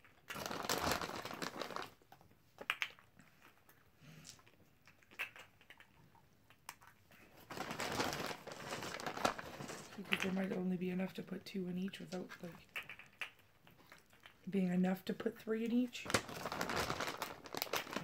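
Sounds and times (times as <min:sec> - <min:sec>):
plastic bag crinkling: 0:00.0 - 0:02.1, 0:07.2 - 0:11.3, 0:15.6 - 0:18.0.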